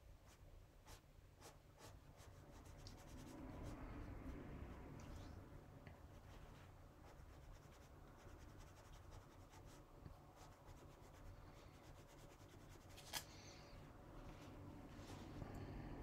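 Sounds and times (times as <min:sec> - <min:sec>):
paintbrush scratching on card: 0:00.2 - 0:04.2, 0:06.1 - 0:13.2.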